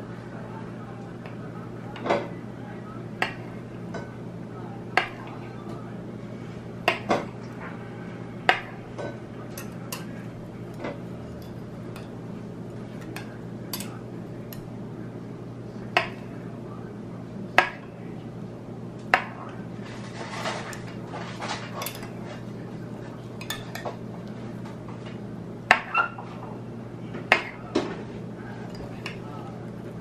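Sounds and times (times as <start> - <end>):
steady low hum: 0.0 - 30.0
knife clinking on ceramic dish: 9.5 - 12.2, 12.9 - 14.7, 21.7 - 22.2, 23.4 - 24.0.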